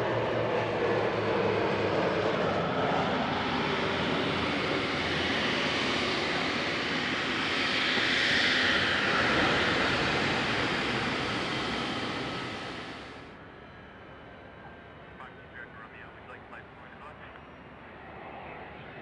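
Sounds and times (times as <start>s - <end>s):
turboprop engines droning: 0.0s - 19.0s.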